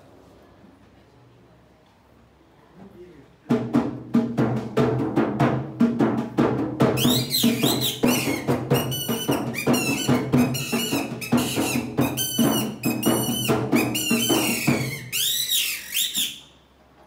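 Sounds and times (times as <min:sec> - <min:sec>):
barrel drum rhythm: 0:03.5 - 0:15.2
shrill squeaking reed whistle: 0:07.0 - 0:16.7.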